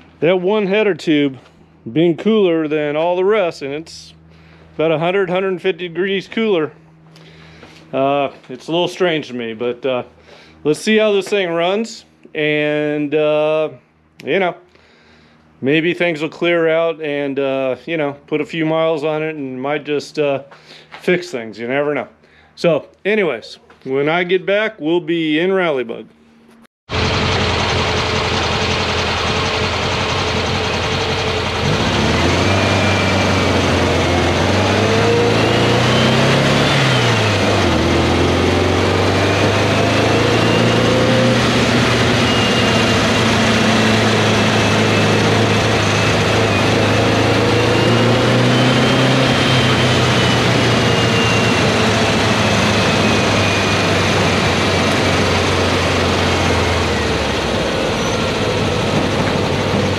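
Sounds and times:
car engine accelerating: 26.9 - 59.9
road and wind noise: 26.9 - 59.9.

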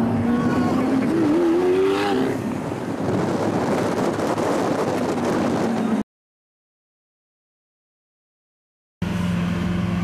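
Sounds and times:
car engine rumbling: 0.0 - 6.0
street noise: 0.0 - 6.0
wind on microphone: 0.2 - 6.0.

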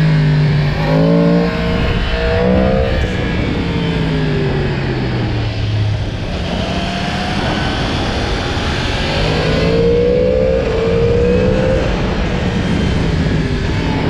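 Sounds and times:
motorcycle engine running: 0.0 - 14.0
steady rush of noise: 0.0 - 14.0.

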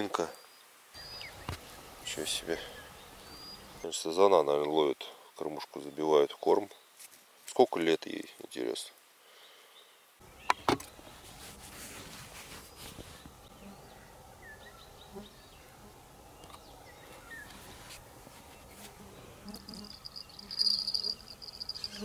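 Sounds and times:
faint bird chirps: 0.3 - 4.0, 12.6 - 17.6, 19.5 - 22.0
insect-like buzzing trill: 19.4 - 22.0.

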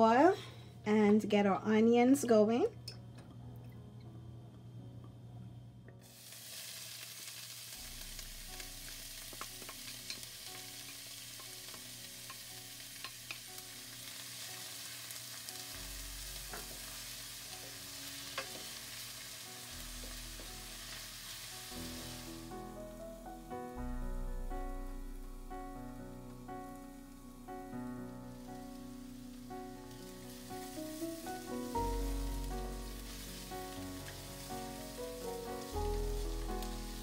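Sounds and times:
onions sizzling in oil: 6.0 - 23.0, 26.2 - 37.0.

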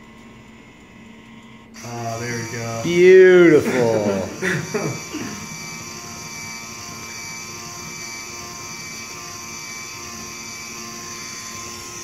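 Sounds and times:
small electric motor whirring: 0.0 - 12.0.

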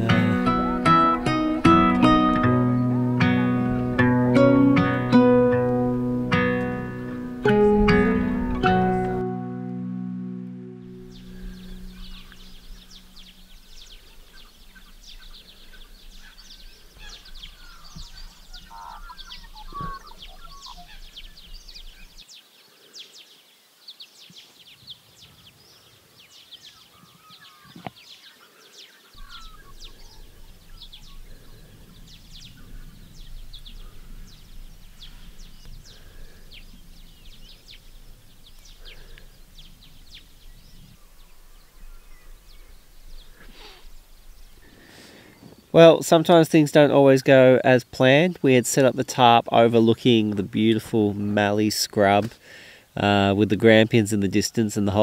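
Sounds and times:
low rumble: 0.0 - 15.1, 29.2 - 43.0
birds chirping: 0.0 - 55.0.

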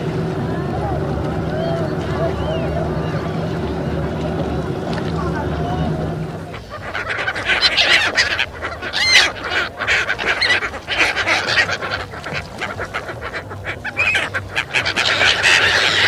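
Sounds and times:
flock of gulls calling: 0.0 - 16.0.

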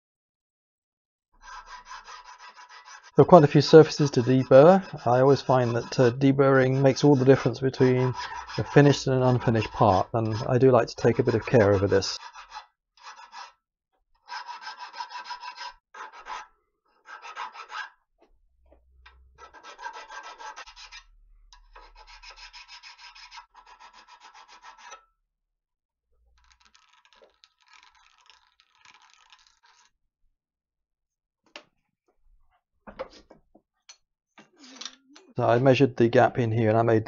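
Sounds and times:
hand file rasping metal: 1.4 - 13.6, 14.2 - 18.0, 19.4 - 25.0.

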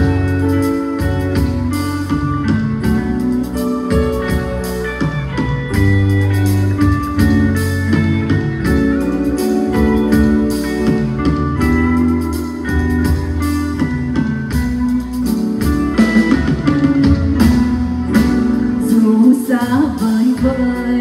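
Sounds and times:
drums: 0.0 - 21.0
guitar: 0.0 - 21.0
person singing: 18.7 - 21.0.

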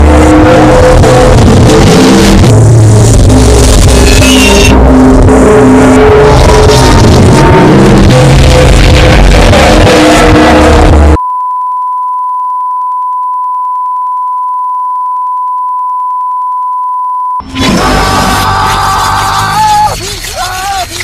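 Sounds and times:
loud distorted music: 0.0 - 11.2, 17.4 - 21.0
steady test tone beep: 11.2 - 17.4.

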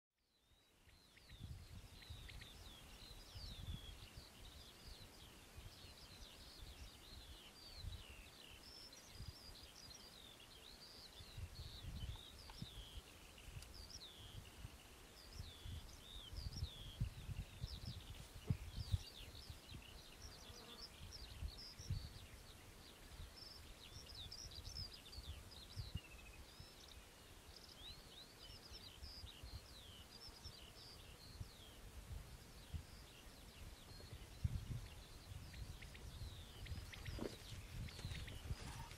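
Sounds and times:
birds chirping and trilling: 0.3 - 38.9.

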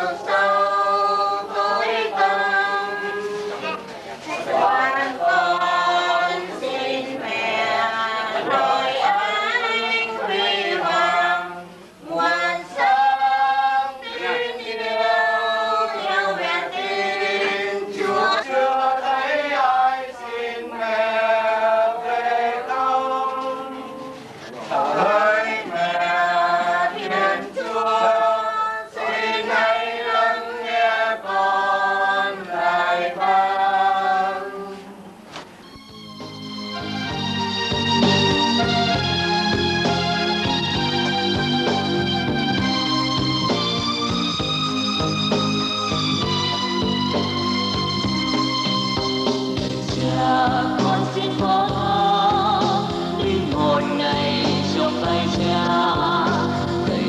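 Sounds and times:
choir singing a slow hymn: 0.0 - 35.0, 49.8 - 57.0.

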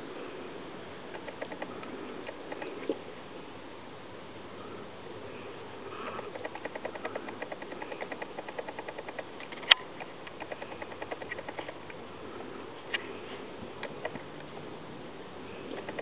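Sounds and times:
sharp click: 1.1 - 2.8, 6.3 - 12.0, 15.7 - 16.0.

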